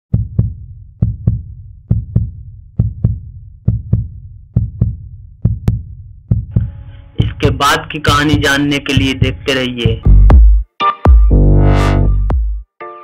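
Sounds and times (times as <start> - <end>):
heartbeat thuds: 0.1 - 11.3.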